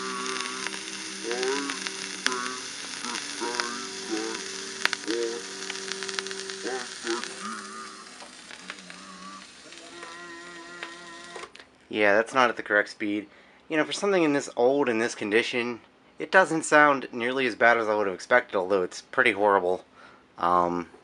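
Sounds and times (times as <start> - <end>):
record clicks: 0.0 - 11.7
record crackle and hiss: 0.0 - 21.0.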